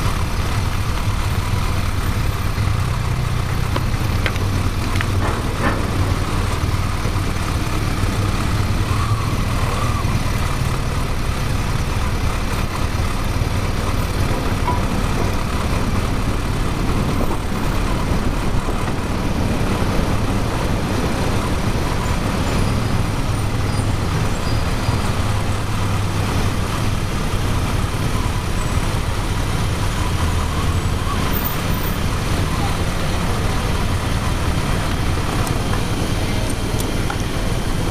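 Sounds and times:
motorcycle engine running: 0.0 - 37.9
road rumble: 0.0 - 37.9
wind: 0.0 - 37.9.

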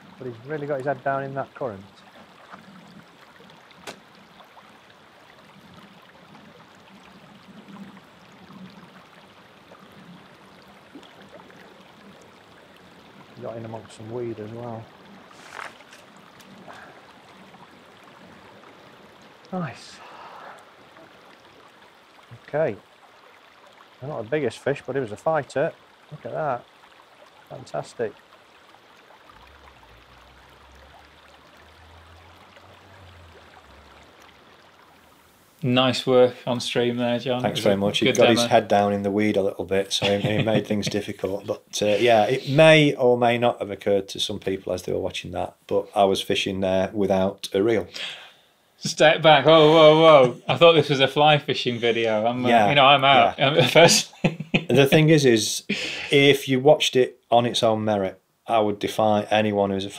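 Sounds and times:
river water running: 0.0 - 59.9.

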